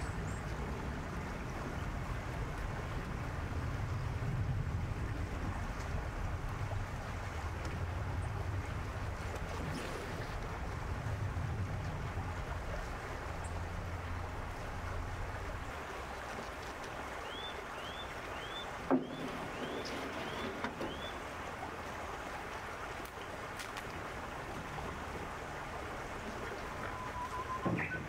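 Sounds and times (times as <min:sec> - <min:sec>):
wind rumble on microphone: 0:00.0 - 0:17.2
river water running: 0:00.0 - 0:28.0.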